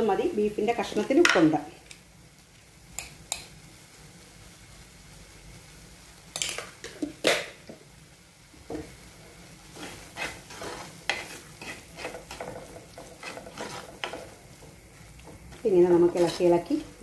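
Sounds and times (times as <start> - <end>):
masala sizzling in ghee: 0.0 - 17.0
spoon scraping clay pot: 9.7 - 14.4.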